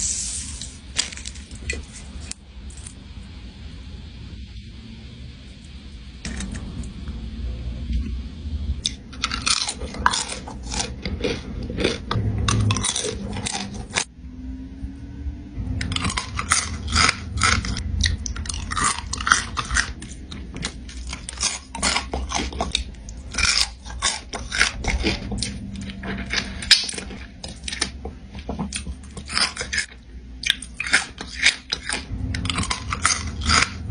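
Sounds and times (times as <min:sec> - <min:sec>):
low steady hum: 0:00.0 - 0:33.9
crunchy chewing: 0:08.8 - 0:14.1, 0:15.8 - 0:33.9.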